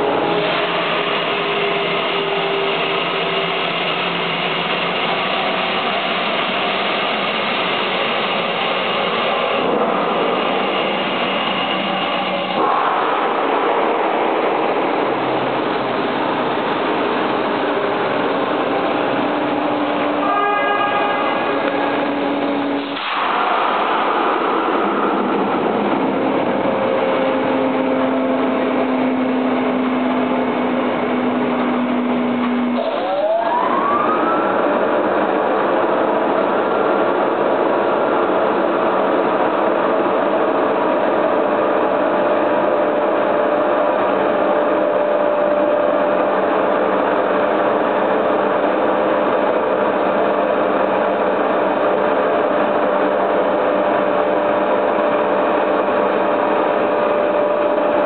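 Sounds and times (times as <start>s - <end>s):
steam venting: 0.0s - 20.0s
machinery running: 0.0s - 58.0s.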